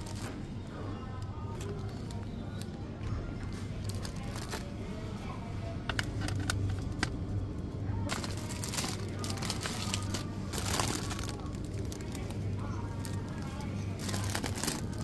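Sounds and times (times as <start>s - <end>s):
low supermarket hum: 0.0s - 15.0s
plastic packaging crinkling: 3.8s - 4.7s, 8.1s - 15.0s.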